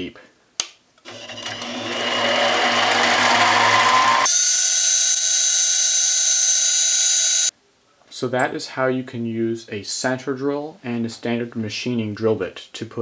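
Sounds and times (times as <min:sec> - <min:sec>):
lathe motor hum with cutting noise: 0:01.1 - 0:04.7
high-pitched machine whine: 0:01.2 - 0:07.5.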